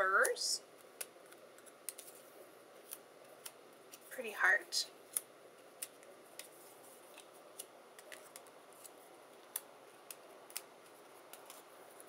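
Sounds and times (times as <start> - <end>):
cardstock pieces clicking and tapping: 0.2 - 2.1, 7.1 - 12.0.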